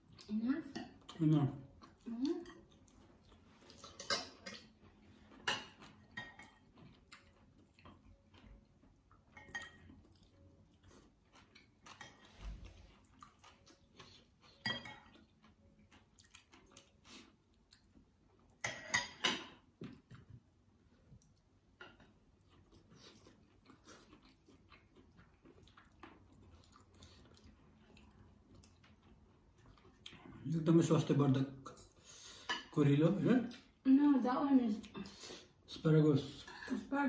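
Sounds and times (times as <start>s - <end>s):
chewing: 0.0s - 18.8s, 19.8s - 30.5s
cutlery clinking on plates: 3.8s - 6.8s, 9.3s - 10.0s, 14.5s - 15.3s, 18.6s - 19.7s.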